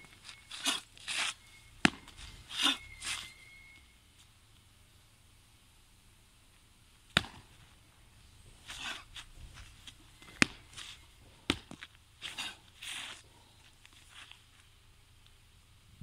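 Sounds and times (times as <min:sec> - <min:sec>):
shoes scuffing: 0:00.0 - 0:03.4, 0:08.5 - 0:14.5
feet stamping on packed dirt: 0:00.0 - 0:03.5, 0:07.2 - 0:14.7.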